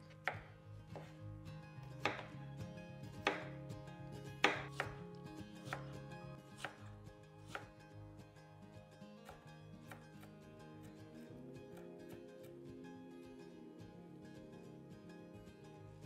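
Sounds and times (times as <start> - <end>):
knife chopping vegetables: 0.0 - 1.2, 2.0 - 2.4, 3.2 - 3.6, 4.4 - 5.9, 6.5 - 7.7, 9.2 - 10.4.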